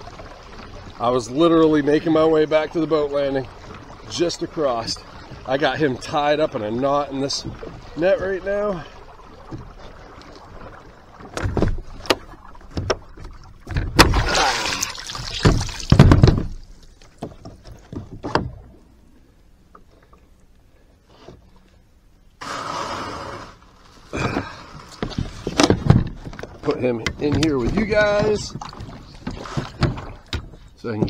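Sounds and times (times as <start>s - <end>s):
water splashing: 0.0s - 19.3s, 22.4s - 31.0s
knocks on plastic kayak hull: 15.4s - 16.6s
hull scraping on sand: 22.4s - 25.4s.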